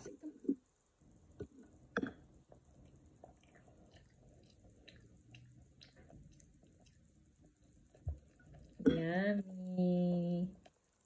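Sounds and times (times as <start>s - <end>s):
child eating noodles: 2.8s - 8.9s.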